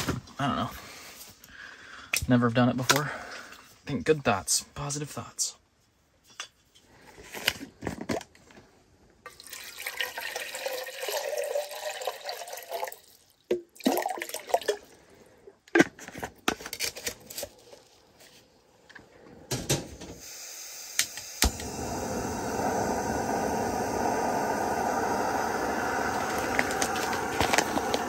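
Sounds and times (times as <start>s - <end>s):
water pouring into metal pot: 9.2s - 15.0s.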